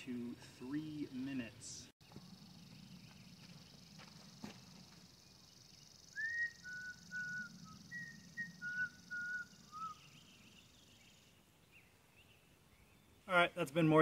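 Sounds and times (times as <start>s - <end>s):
steady high hiss: 5.0s - 11.8s
whistled notes: 6.1s - 10.2s.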